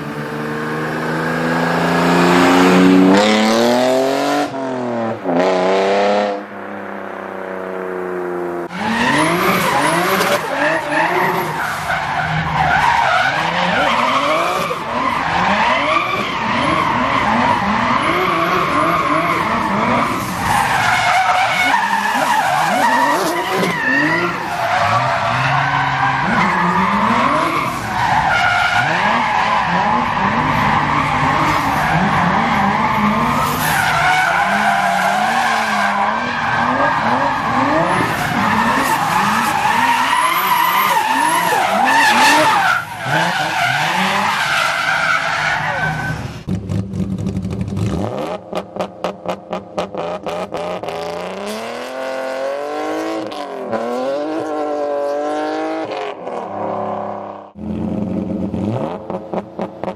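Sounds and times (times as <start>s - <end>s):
tyres squealing: 8.7s - 46.3s.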